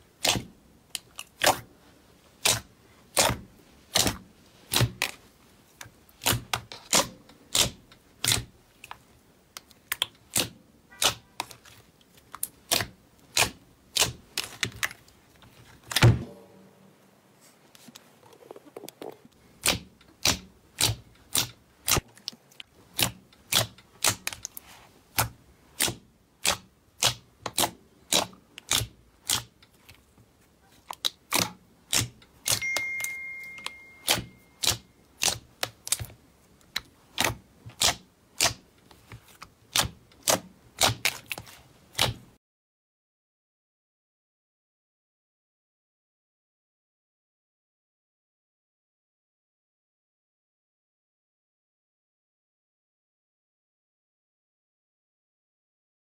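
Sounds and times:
slime squeezed with clicks and pops: 33.6s - 35.4s.

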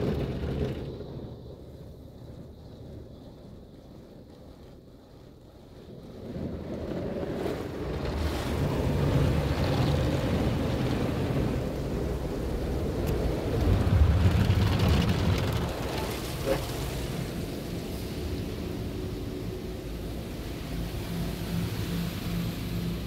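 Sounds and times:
water jets spraying car: 6.3s - 23.0s.

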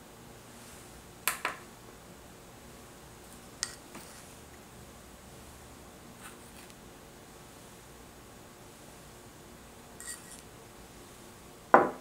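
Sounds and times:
faint steady hiss: 0.0s - 12.0s
glass bowl and spoon clinking: 10.0s - 10.4s.

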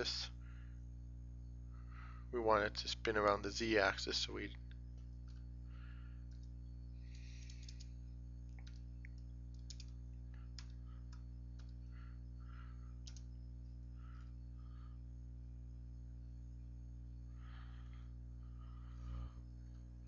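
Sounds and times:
low electrical hum: 0.0s - 20.0s
keyboard and mouse clicking: 7.3s - 7.9s, 8.5s - 10.0s, 10.6s - 11.8s, 13.0s - 13.3s.

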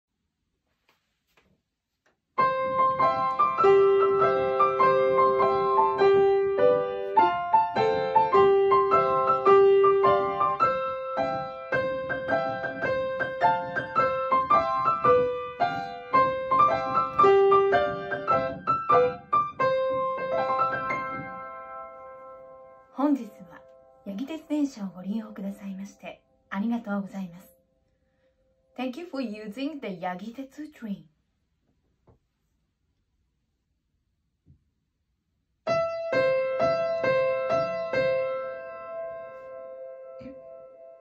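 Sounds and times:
upright piano melody: 2.4s - 26.0s, 35.7s - 41.0s.

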